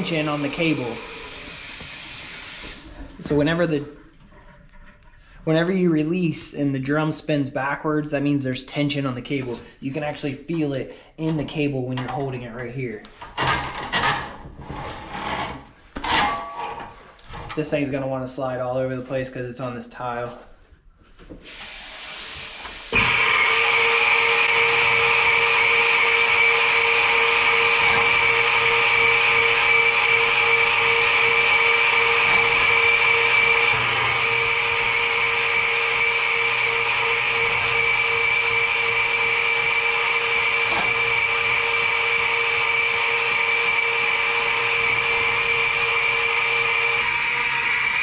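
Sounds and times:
drain cleaning machine whine: 0:00.0 - 0:03.8, 0:21.5 - 0:48.0.

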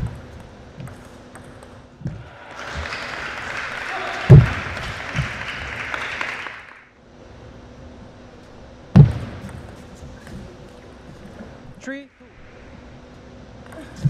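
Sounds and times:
heavy footstep thuds: 0:04.3 - 0:04.6, 0:09.0 - 0:09.4.

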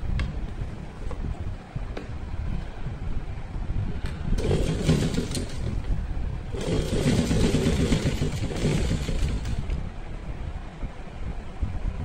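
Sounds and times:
sewing machine stitching: 0:04.4 - 0:05.9, 0:06.5 - 0:09.8.

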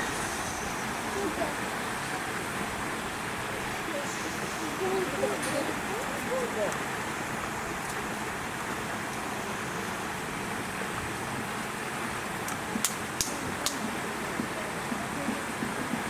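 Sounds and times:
distant human voices: 0:00.0 - 0:07.6
outdoor background hiss: 0:00.0 - 0:16.0.

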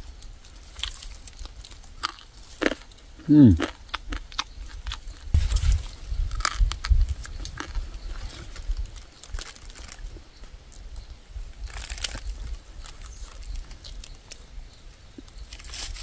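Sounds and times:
charred meat crackling: 0:00.0 - 0:16.0
person chewing and crunching: 0:00.2 - 0:10.1.

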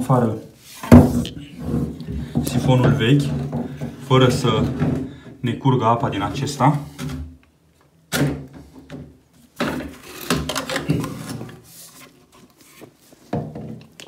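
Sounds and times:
plastic hose knocking: 0:00.9 - 0:05.1
plastic scraping and rattling: 0:08.9 - 0:14.0.

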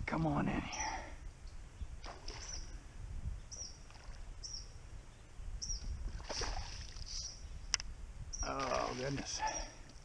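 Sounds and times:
wind and water rumble: 0:00.0 - 0:10.0
small bird chirping: 0:00.7 - 0:02.8, 0:03.4 - 0:06.0, 0:06.9 - 0:09.8.

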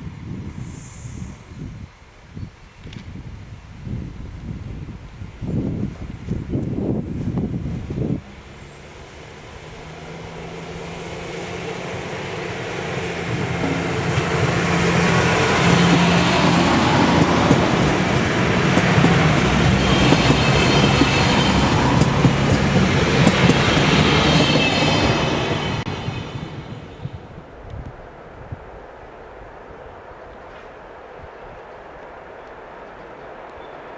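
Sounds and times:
train engine hum: 0:00.0 - 0:33.9
train wheel noise: 0:06.3 - 0:27.2.

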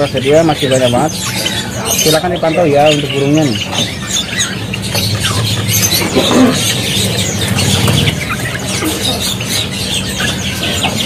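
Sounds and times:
songbirds chirping: 0:00.0 - 0:11.0
steady low hum: 0:00.0 - 0:11.0.

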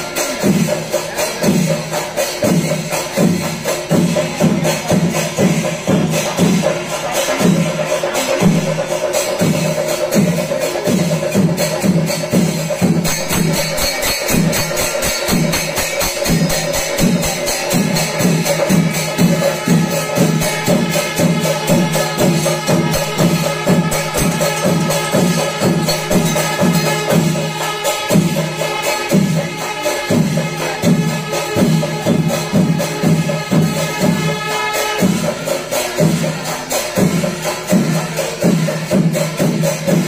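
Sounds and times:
drums beating: 0:00.0 - 0:40.0
hand cymbals clashing: 0:00.0 - 0:40.0.

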